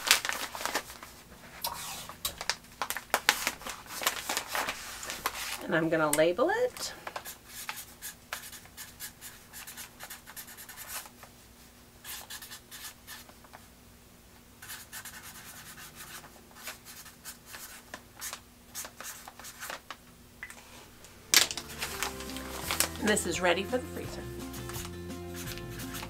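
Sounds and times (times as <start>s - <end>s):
marker pen scratching on paper: 7.2s - 11.1s, 12.0s - 13.4s, 14.6s - 19.8s, 24.5s - 26.0s.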